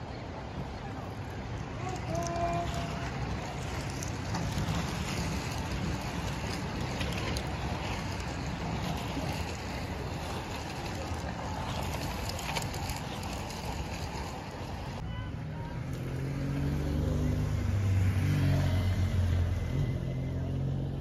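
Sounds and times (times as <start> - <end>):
wind rumbling on microphone: 0.0 - 15.0
outdoor background noise: 0.0 - 21.0.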